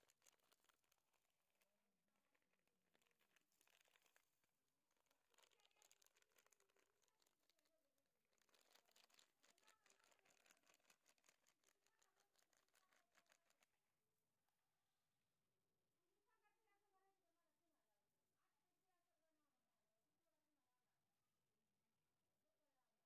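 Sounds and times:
plastic packet crinkling: 0:00.0 - 0:01.6, 0:02.3 - 0:07.7, 0:08.3 - 0:13.7
cat chewing dry kibble: 0:00.0 - 0:13.8.

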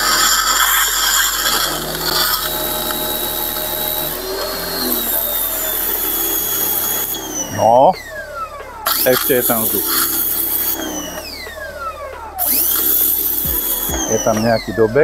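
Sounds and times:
water jet hissing: 0:00.0 - 0:07.9
pressure washer motor hum: 0:00.0 - 0:15.0.

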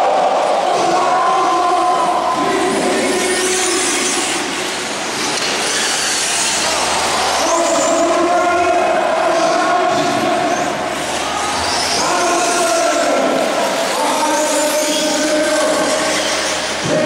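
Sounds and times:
small engines racing at high revs: 0:02.0 - 0:17.0.

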